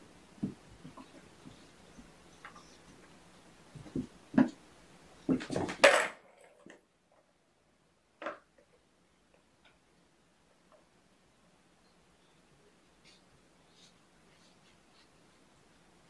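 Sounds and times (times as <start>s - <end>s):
kittens thumping across floor: 5.3s - 6.1s.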